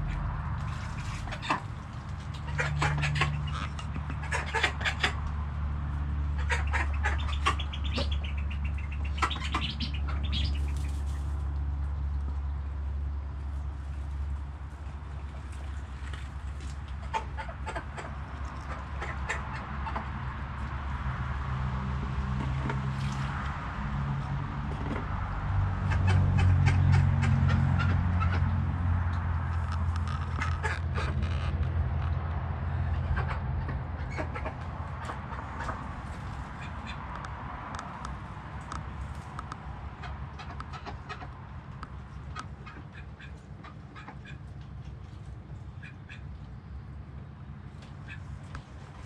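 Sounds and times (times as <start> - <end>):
ducks quacking: 0.0 - 11.3, 15.2 - 20.3, 25.7 - 29.1, 29.8 - 37.7, 39.8 - 41.4, 42.2 - 44.5, 45.7 - 46.4.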